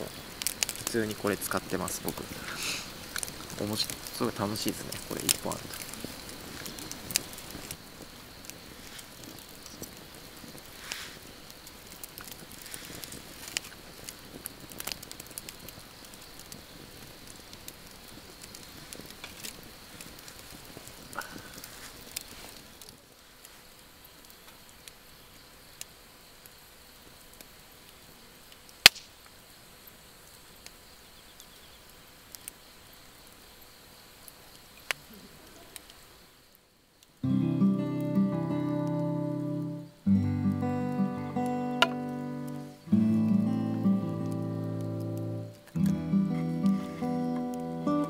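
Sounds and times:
logs popping: 0.0 - 23.0, 28.8 - 29.2, 37.4 - 48.0
wood fire crackling: 0.0 - 48.0
acoustic guitar music: 37.2 - 48.0.

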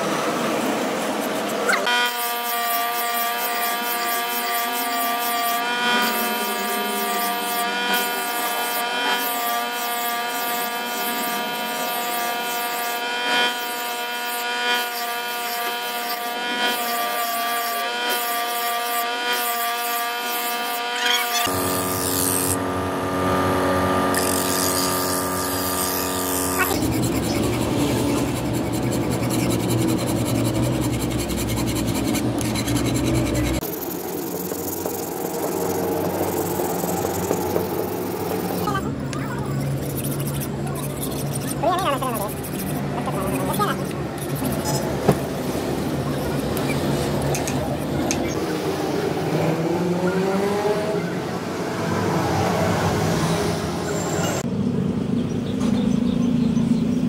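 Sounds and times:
file rasping on steel blade: 1.0 - 22.7, 24.1 - 45.0
engine running: 21.0 - 57.0.

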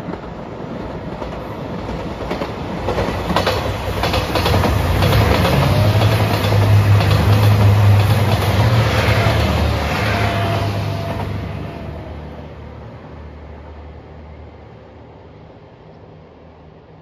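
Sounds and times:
train wheels clattering: 1.1 - 11.6
diesel engines droning: 4.6 - 14.6.

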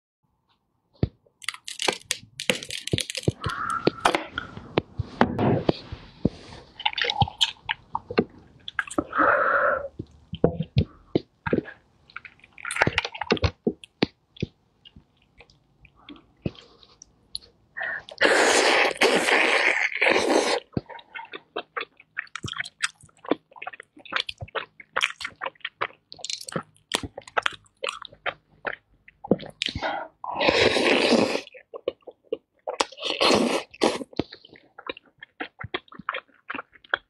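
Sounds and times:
plastic gloves crinkling: 1.4 - 8.8.

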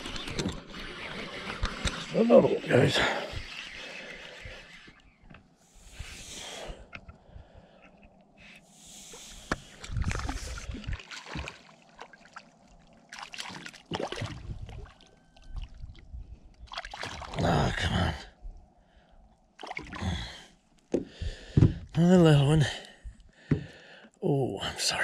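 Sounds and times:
fish splashing at water surface: 9.8 - 15.0.

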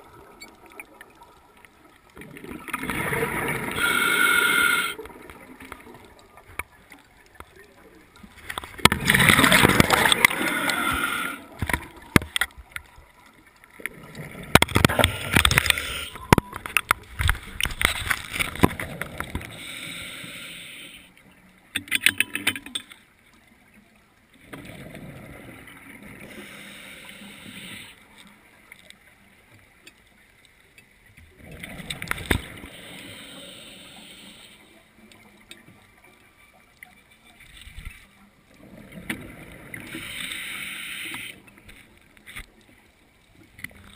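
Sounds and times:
exhaled bubbles rumbling: 2.2 - 3.8, 7.6 - 12.2.

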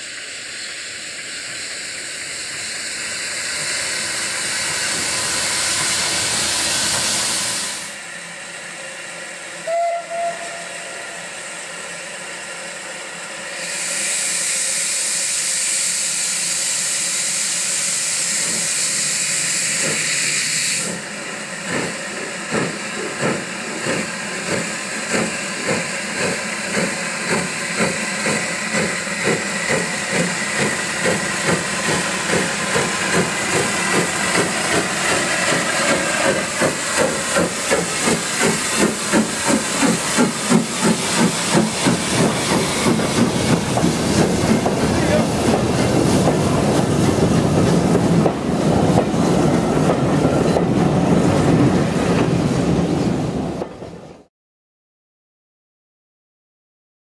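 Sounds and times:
loud steam hiss: 0.0 - 53.4
steam whistle toots: 9.6 - 11.4
steam locomotive exhaust beats: 13.6 - 53.0.

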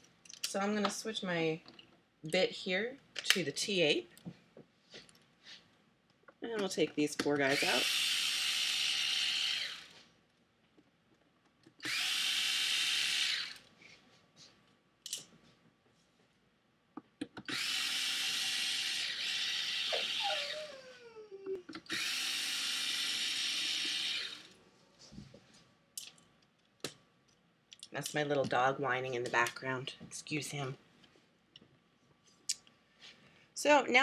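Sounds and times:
electric screwdriver running: 7.5 - 10.0, 11.8 - 13.7, 17.5 - 21.0, 21.8 - 24.6
dog whining: 19.9 - 21.7.

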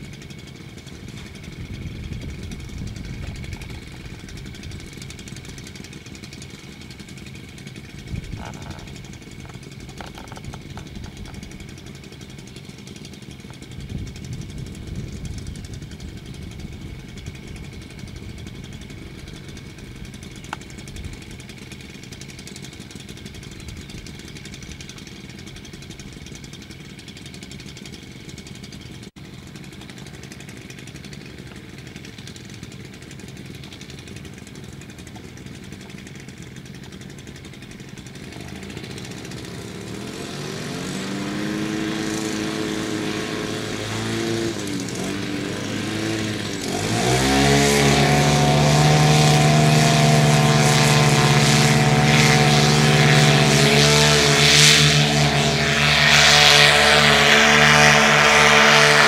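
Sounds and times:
paramotor engine idling and revving: 0.0 - 59.0.

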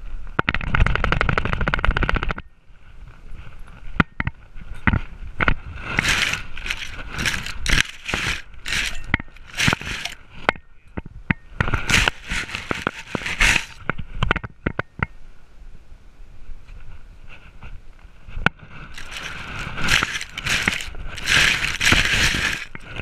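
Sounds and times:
camera knocking and scraping: 4.9 - 10.2, 11.6 - 14.4, 18.9 - 23.0
rustling through grass: 5.6 - 10.3, 11.8 - 13.8, 18.6 - 23.0.

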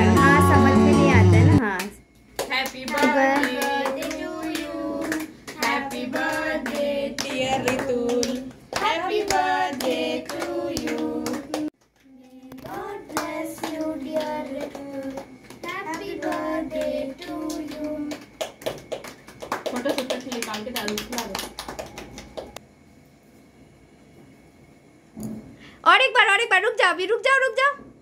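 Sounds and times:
children clapping: 1.8 - 22.6.

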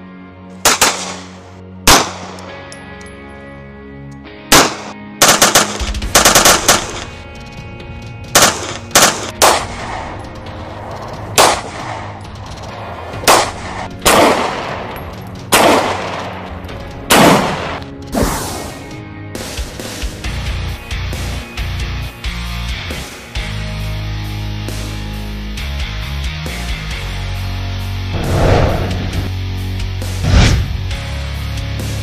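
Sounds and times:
background music: 0.0 - 32.0
pistol shots with echo: 0.6 - 2.6, 4.5 - 7.0, 8.4 - 10.2, 11.4 - 12.1, 13.2 - 16.5, 17.1 - 17.8.

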